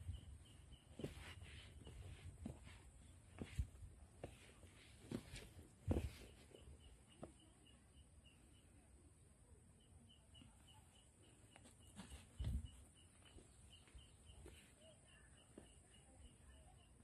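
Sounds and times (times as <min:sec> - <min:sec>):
dull thumps: 0:03.4 - 0:06.4.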